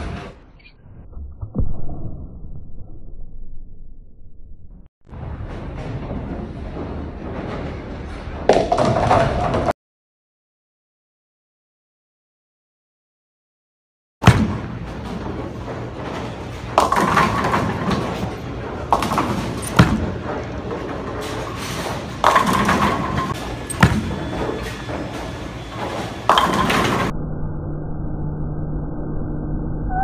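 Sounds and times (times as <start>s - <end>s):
bowling balls hitting pins: 8.3s - 9.7s, 14.2s - 27.1s
bowling alley background din: 14.2s - 27.1s.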